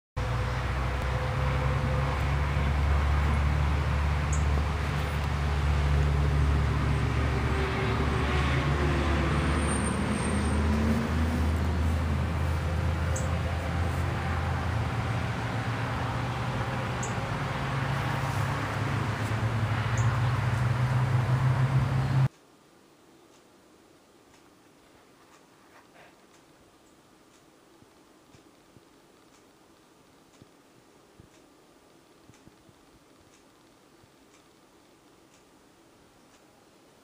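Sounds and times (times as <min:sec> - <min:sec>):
low motor rumble: 0:00.2 - 0:22.3
faint high ticks: 0:23.3 - 0:23.5, 0:24.3 - 0:36.5.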